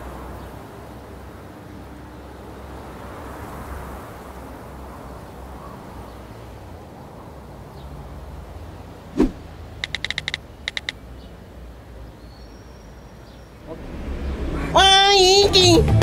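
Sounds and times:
electronic typing clicks: 0:09.8 - 0:11.0.

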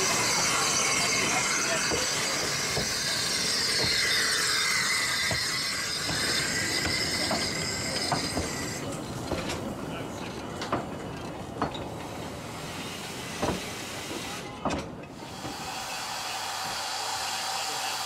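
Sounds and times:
train wheels squealing: 0:00.0 - 0:08.9
wheels clicking over rail joints: 0:00.0 - 0:15.6.

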